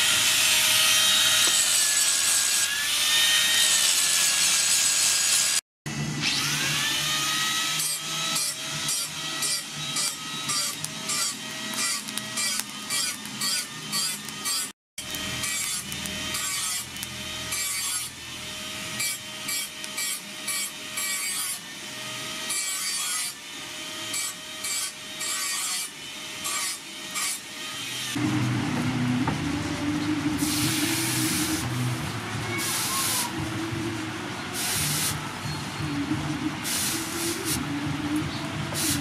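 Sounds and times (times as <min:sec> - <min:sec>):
hot steel hissing in water: 0:30.4 - 0:31.7, 0:32.6 - 0:33.4, 0:34.6 - 0:35.2, 0:36.6 - 0:37.6.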